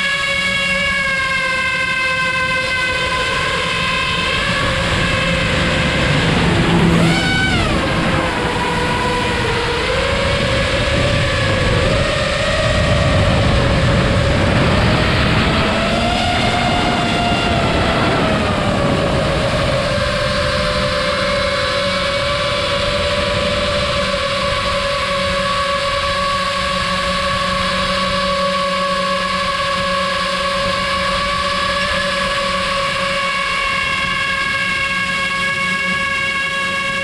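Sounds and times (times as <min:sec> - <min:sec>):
drone motors whining: 0:00.0 - 0:37.0.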